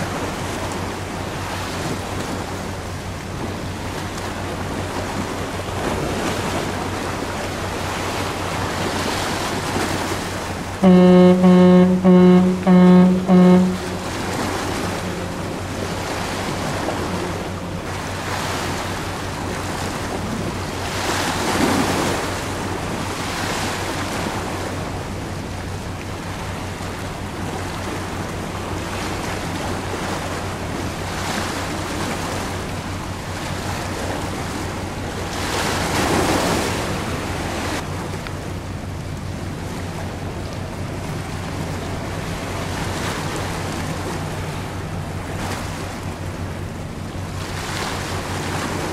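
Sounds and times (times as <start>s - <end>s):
sea waves washing: 0.0s - 48.9s
steady low drone: 10.8s - 20.8s.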